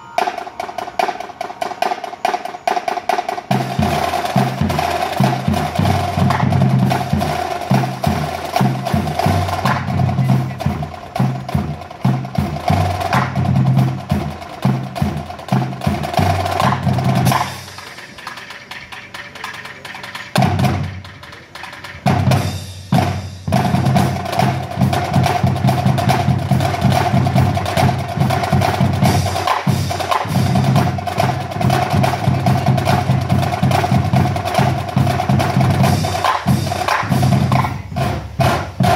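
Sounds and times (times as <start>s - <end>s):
snare and bass drums: 0.0s - 38.9s.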